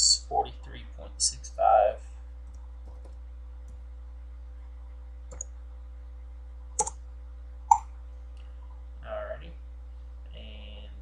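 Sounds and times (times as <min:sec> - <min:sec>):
low electrical hum: 0:00.0 - 0:11.0
keyboard clicks: 0:02.5 - 0:03.8.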